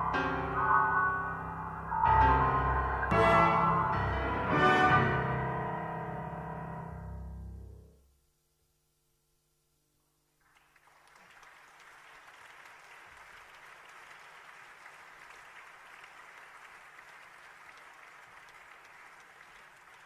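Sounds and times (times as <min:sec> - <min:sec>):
audience applauding: 0:10.4 - 0:20.0.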